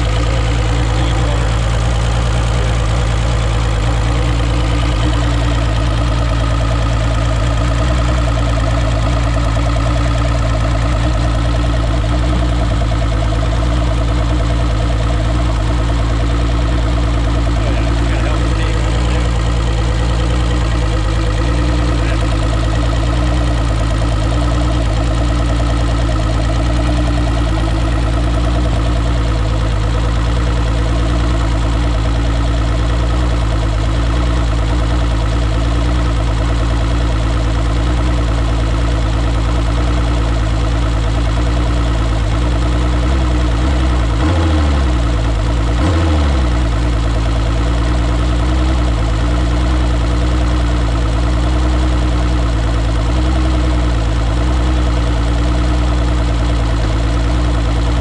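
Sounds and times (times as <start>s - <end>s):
outboard engine idling: 0.0s - 58.0s.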